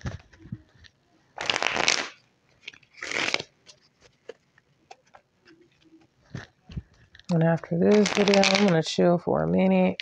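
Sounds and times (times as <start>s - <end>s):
cards shuffling: 1.4s - 6.8s, 7.9s - 8.8s.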